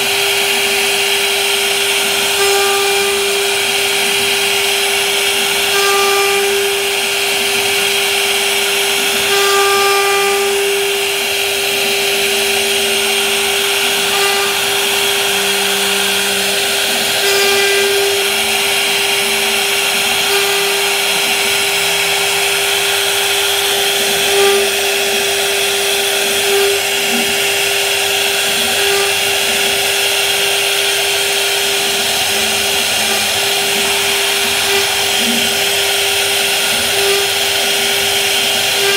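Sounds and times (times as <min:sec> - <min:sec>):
router spindle whine: 0:00.0 - 0:38.9
bit cutting wood hiss: 0:12.4 - 0:38.9.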